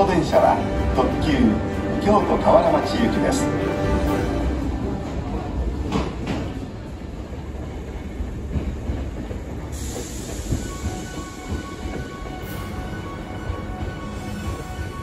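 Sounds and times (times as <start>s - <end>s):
train low rumble: 0.0s - 15.0s
train wheel clacks: 5.0s - 15.0s.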